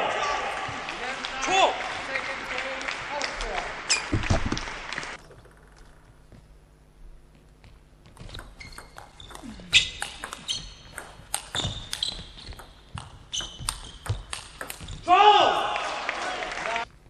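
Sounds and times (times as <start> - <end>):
shoes squeaking on floor: 3.9 - 4.4, 8.1 - 15.1
table tennis ball clicking: 8.2 - 14.9.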